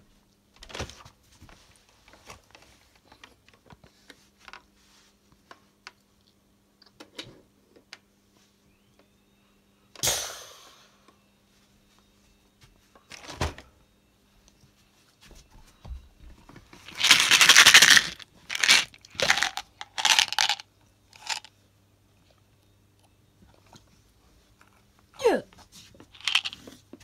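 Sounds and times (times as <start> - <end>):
toy dart blaster pop and hiss: 10.0 - 10.8
crunching and rustling plastic: 16.8 - 20.6, 21.2 - 21.5, 26.1 - 26.7.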